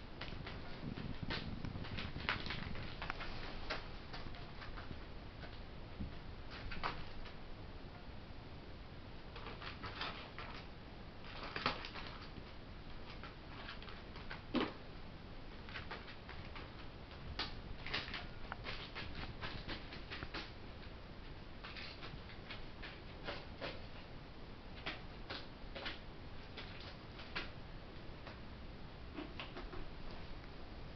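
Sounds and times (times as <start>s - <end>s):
bird feet tapping on plastic: 0.2s - 7.4s, 15.6s - 21.0s.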